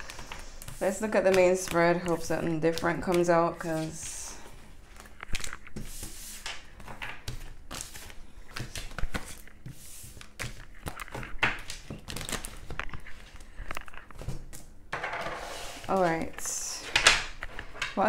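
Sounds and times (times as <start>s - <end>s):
cards tapping and clicking: 0.0s - 4.0s, 5.0s - 14.7s.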